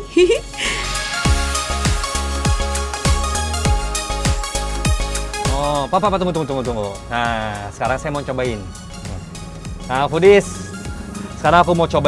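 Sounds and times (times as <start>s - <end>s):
bass line: 0.0s - 12.0s
electronic music: 0.0s - 12.0s
booming kick drum: 1.3s - 5.7s.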